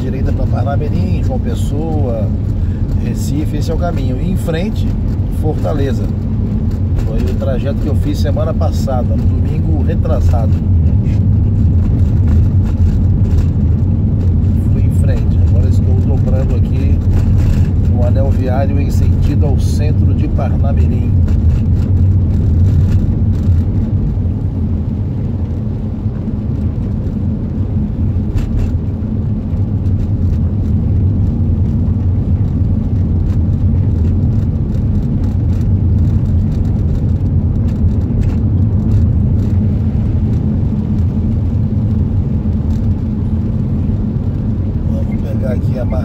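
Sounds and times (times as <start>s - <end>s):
car engine hum: 0.0s - 46.0s
tyres on wet road: 0.0s - 46.0s.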